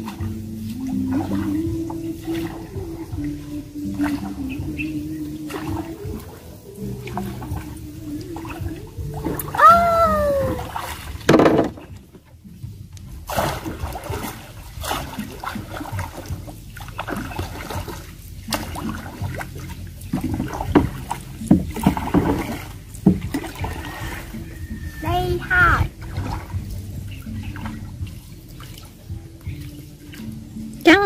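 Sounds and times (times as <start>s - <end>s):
paddle pulling through water: 0.0s - 31.0s
water splashes: 0.0s - 31.0s
paddle knocking on canoe: 8.4s - 30.4s.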